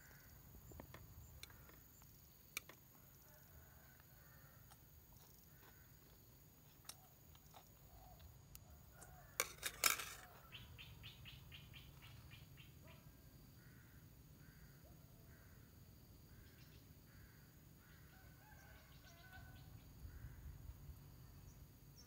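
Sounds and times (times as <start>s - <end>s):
faint bird chirps: 10.3s - 20.6s.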